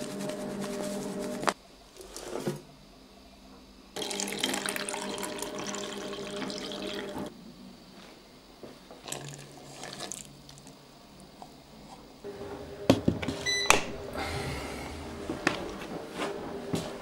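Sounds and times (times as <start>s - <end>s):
short electronic beep: 13.4s - 14.0s.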